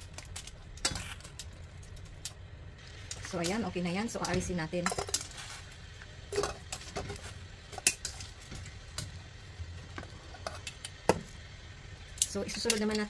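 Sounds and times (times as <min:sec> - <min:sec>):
low steady hum: 0:00.0 - 0:13.0
metal tongs clinking on pan: 0:04.2 - 0:05.3, 0:12.2 - 0:13.0.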